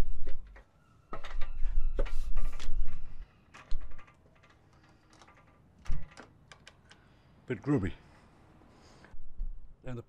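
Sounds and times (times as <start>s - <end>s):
clicks and knocks on ladder: 0.2s - 7.0s.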